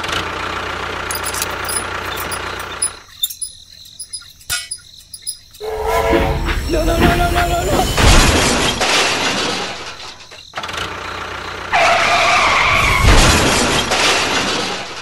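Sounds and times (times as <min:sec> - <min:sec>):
toy train crashing and skidding: 0:06.7 - 0:10.3, 0:11.9 - 0:15.0.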